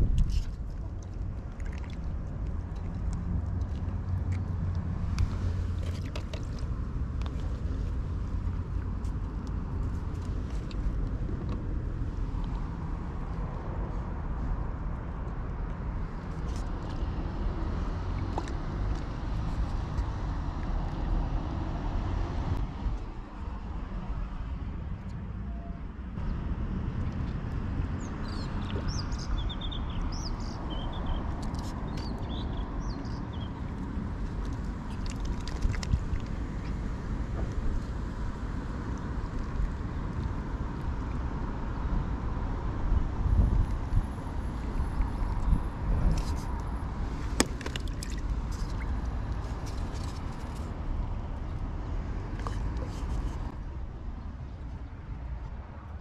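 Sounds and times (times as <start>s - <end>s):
low outdoor rumble: 0.0s - 56.0s
small birds chirping: 28.0s - 33.7s.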